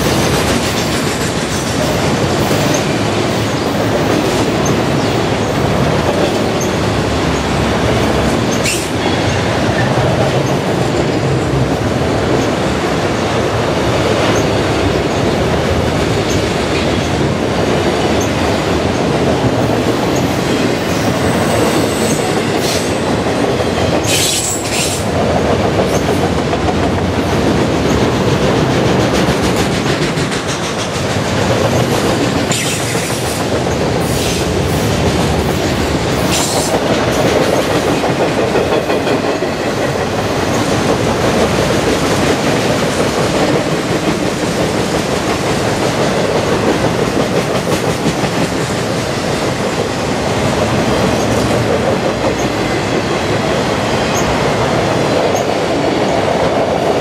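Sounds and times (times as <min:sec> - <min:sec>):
steel wheels running on rails: 0:00.0 - 0:57.0
high wheel squeal: 0:21.2 - 0:23.0.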